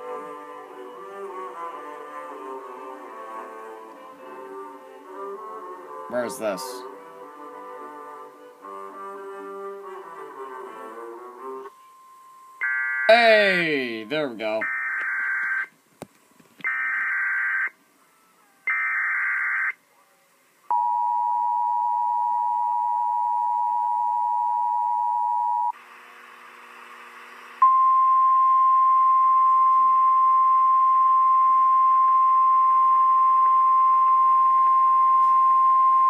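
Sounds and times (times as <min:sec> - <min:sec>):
steady alarm tone: 0:12.0 - 0:13.9, 0:14.6 - 0:15.7.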